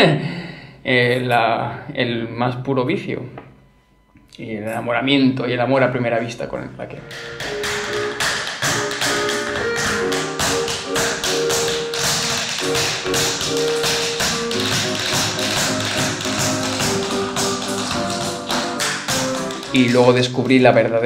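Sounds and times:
music with held notes: 6.9 - 20.8
tap shoes striking floor: 7.1 - 20.2.

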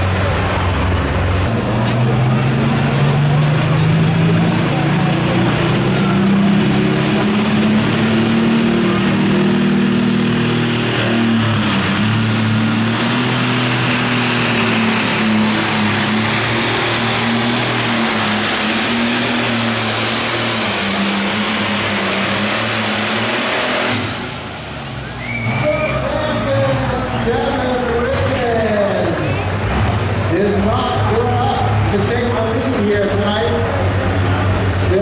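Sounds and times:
tractor diesel engine under load: 0.0 - 35.0
high whistle: 25.0 - 26.0.

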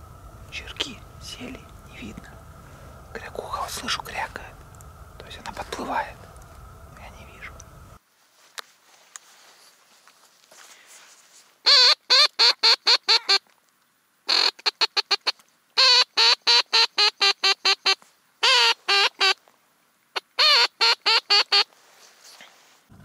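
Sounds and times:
duck call quacking notes: 11.7 - 13.4, 14.3 - 19.4, 20.4 - 21.7.

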